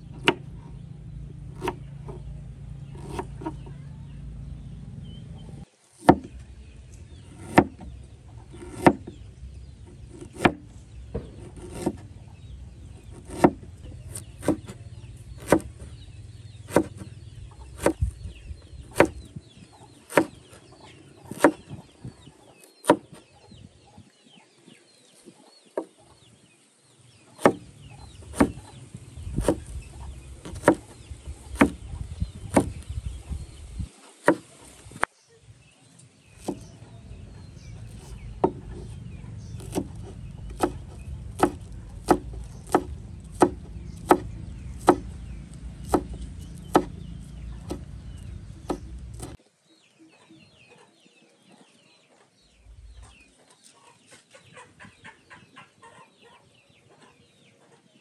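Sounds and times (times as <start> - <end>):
sharp knocks: 6.0 - 6.4, 7.3 - 7.9, 16.7 - 17.1, 27.4 - 27.6, 28.3 - 28.6, 32.5 - 32.8, 38.0 - 38.9, 39.6 - 45.1, 45.8 - 47.0
chickens clucking: 27.2 - 35.0, 50.0 - 58.0.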